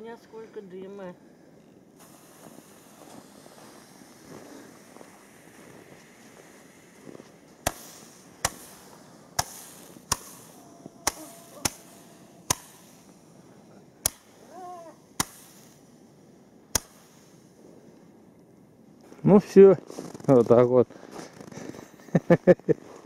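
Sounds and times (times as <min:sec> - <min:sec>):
firework firing sharp shots: 0:02.0 - 0:18.0.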